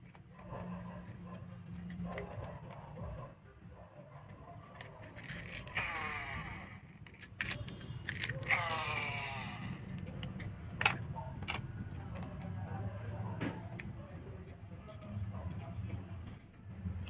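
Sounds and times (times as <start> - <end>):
toy cars clicking and knocking: 4.3 - 12.6
toy car motor whirring: 4.7 - 12.3.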